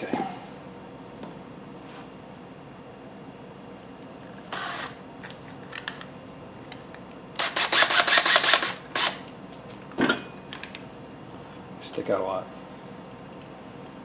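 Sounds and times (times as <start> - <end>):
cordless drill driving screws: 4.5 - 4.9, 7.4 - 9.2.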